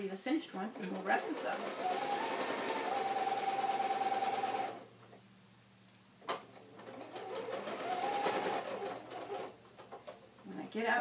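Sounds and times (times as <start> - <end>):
sewing machine stitching: 0.5 - 4.8, 6.6 - 9.5.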